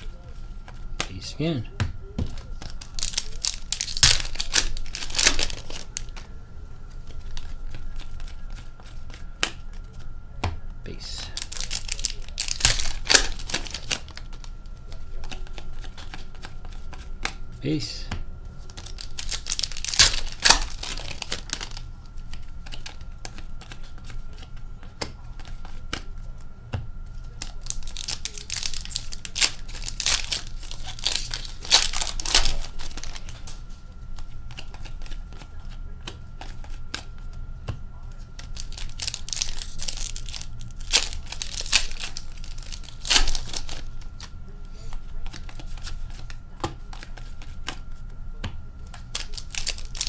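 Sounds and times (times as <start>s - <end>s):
foil wrappers crinkling: 2.0s - 10.1s, 10.9s - 26.4s, 27.1s - 48.1s, 48.8s - 50.0s
card packs being torn open: 2.2s - 6.2s, 10.9s - 17.8s, 18.6s - 24.5s, 27.2s - 33.6s, 38.3s - 44.3s, 44.9s - 47.9s, 48.9s - 50.0s.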